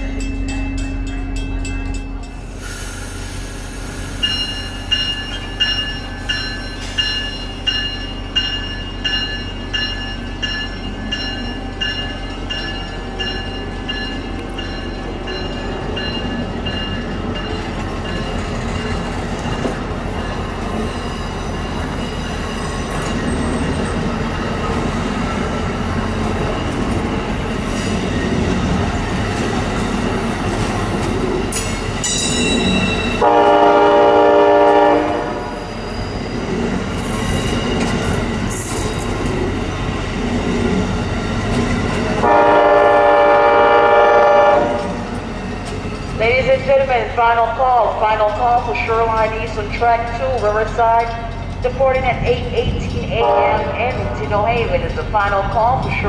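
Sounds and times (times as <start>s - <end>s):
train wheels clicking: 0.0s - 33.6s
train cars rumbling past: 0.0s - 56.0s
multi-note train horn: 33.2s - 35.7s, 42.2s - 45.0s, 53.2s - 53.8s.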